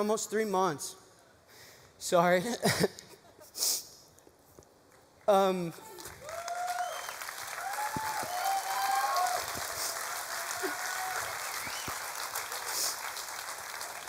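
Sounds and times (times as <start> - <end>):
audience applauding: 5.9 - 14.0.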